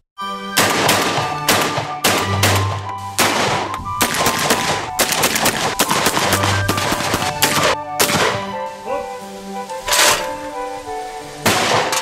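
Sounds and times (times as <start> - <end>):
background music: 0.2 - 12.0
shotgun shots: 0.6 - 8.5, 11.4 - 12.0.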